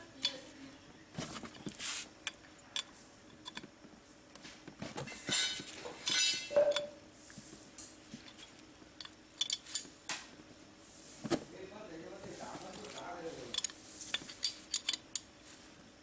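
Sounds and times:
spanners clinking on bolts: 0:01.5 - 0:03.7, 0:05.1 - 0:07.0, 0:08.2 - 0:09.9, 0:12.7 - 0:15.4.

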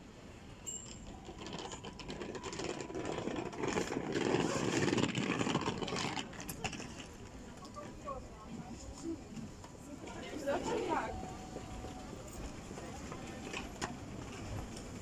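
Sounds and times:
tram wheels rumbling on rails: 0:00.0 - 0:15.0.

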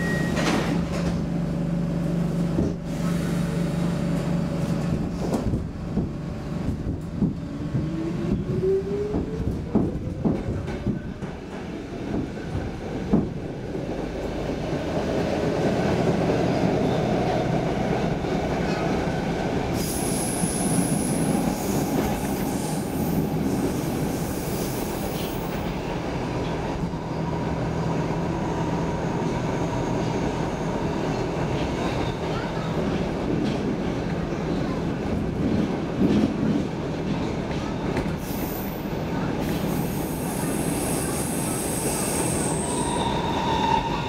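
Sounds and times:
subway train rumble: 0:00.0 - 0:44.0
high wheel squeal: 0:40.6 - 0:44.0.

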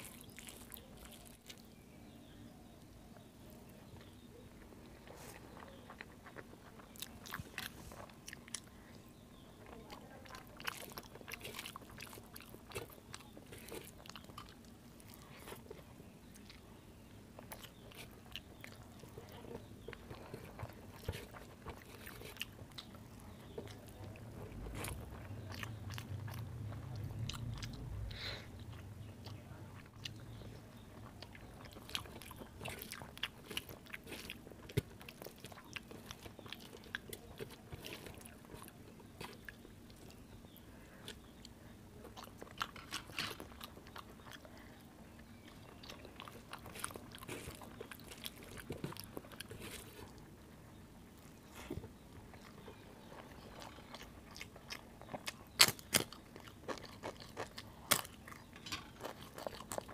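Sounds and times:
fingers squishing rice on plate: 0:00.0 - 0:01.8, 0:02.8 - 0:50.4
wet chewing: 0:00.0 - 0:59.9
low hum: 0:24.0 - 0:31.2.

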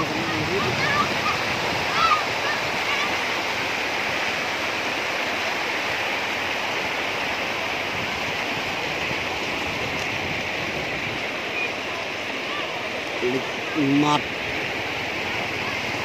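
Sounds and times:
floodwater rushing: 0:00.0 - 0:16.0.

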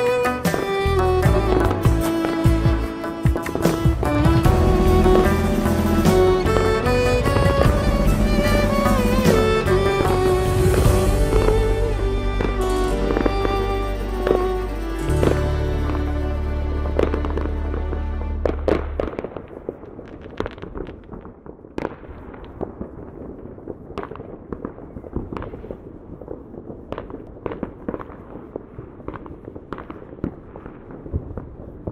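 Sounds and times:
music: 0:00.0 - 0:19.4
fireworks bangs and crackles: 0:00.0 - 0:31.9.

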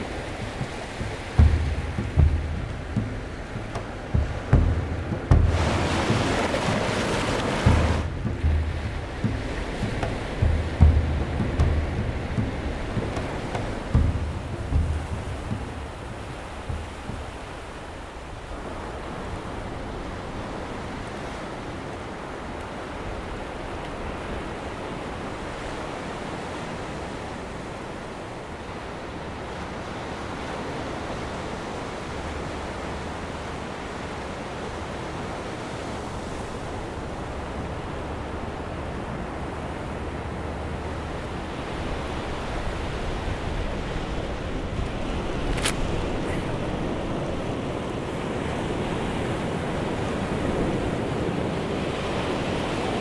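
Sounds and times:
surf breaking on rocky shore: 0:00.0 - 0:21.5.

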